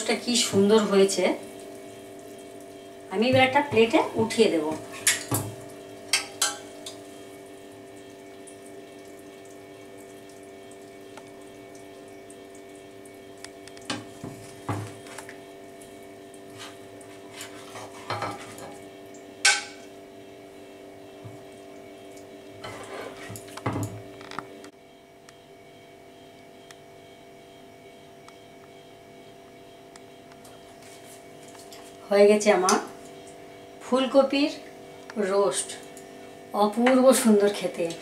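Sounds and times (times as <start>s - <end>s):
steady hum: 0.0s - 38.0s
metal spoon scraping frying pan: 22.6s - 23.4s.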